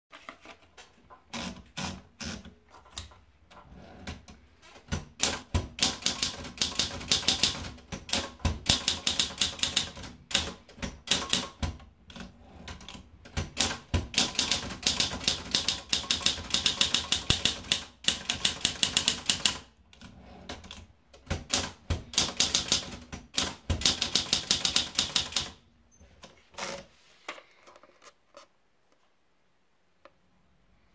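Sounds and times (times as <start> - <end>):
typewriter keys striking: 4.9 - 11.7, 13.3 - 19.6, 21.2 - 25.6.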